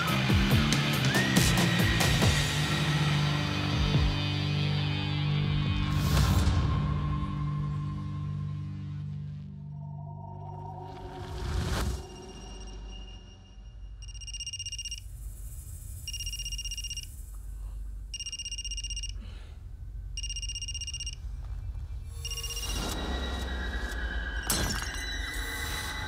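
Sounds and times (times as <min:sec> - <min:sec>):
warbling electronic phone ring: 0:14.0 - 0:15.0, 0:16.1 - 0:17.0, 0:18.2 - 0:19.2, 0:20.2 - 0:21.2.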